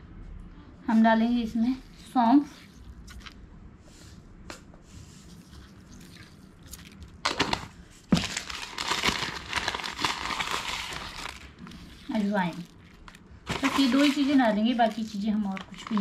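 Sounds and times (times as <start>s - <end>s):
plastic packet crinkling: 6.7s - 16.0s.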